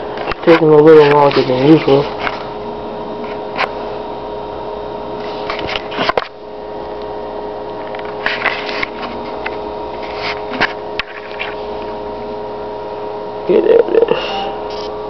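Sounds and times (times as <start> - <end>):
steady hum with fixed tones: 0.0 - 15.0.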